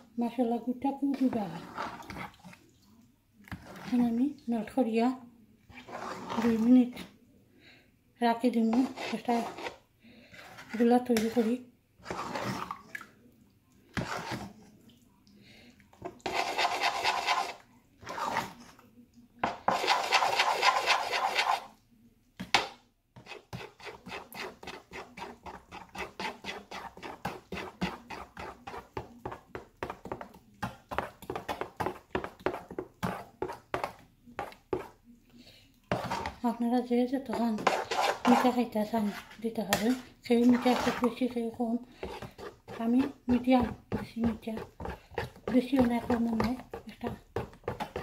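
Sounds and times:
metal spoon scraping saucepan: 1.1 - 2.5, 8.6 - 12.8, 16.2 - 18.7, 19.6 - 21.7, 23.2 - 28.9, 35.9 - 36.5, 37.2 - 48.0.

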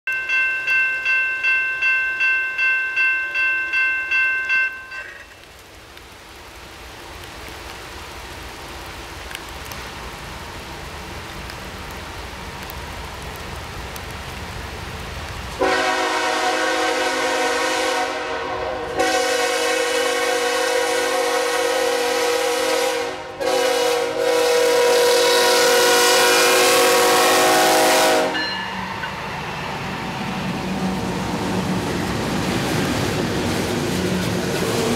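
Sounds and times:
bell ringing rapidly: 0.1 - 5.2
train rumbling: 0.1 - 34.9
locomotive horn: 15.6 - 28.6.

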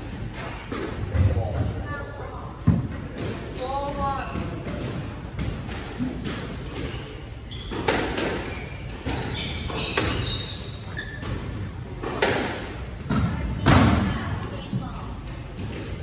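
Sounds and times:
shoes squeaking on wooden floor: 0.0 - 3.0, 6.7 - 11.8.

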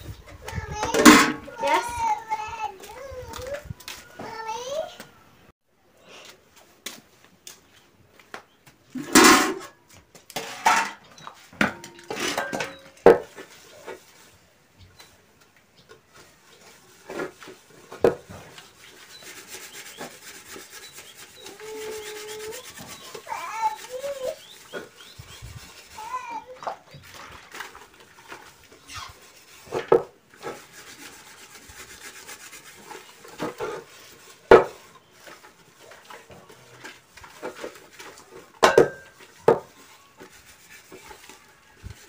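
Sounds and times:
metal pots clanking: 1.0 - 1.5, 9.0 - 9.8, 10.4 - 13.3, 38.5 - 39.3
steel wool scrubbing: 16.2 - 42.0.

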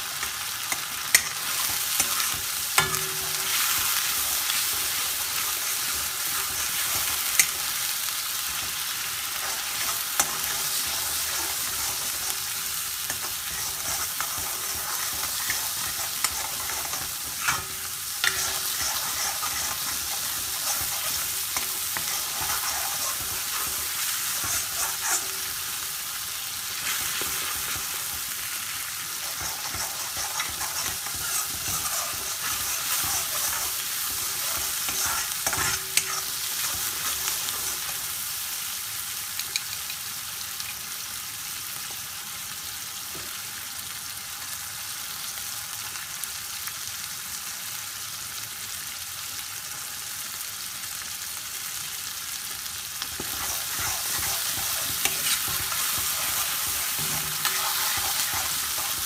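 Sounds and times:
spices sizzling in oil: 0.0 - 59.0
metal spoon scraping a pan: 0.2 - 7.8, 8.5 - 25.8, 29.0 - 38.1, 53.1 - 59.0.

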